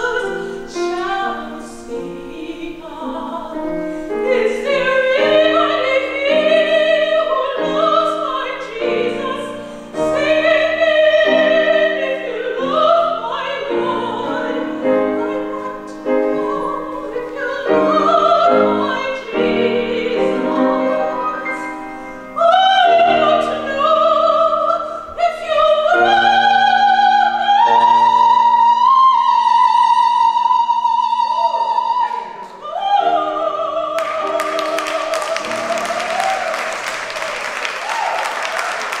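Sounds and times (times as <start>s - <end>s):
classical singing with vibrato: 0.0s - 39.0s
piano accompaniment: 0.0s - 39.0s
applause: 34.0s - 39.0s.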